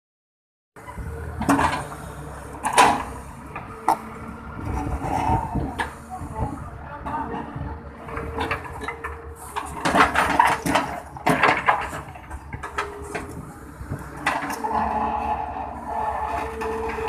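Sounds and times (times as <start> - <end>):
diesel engine running: 0.8 - 17.0
bucket clanking and scraping: 8.1 - 13.4.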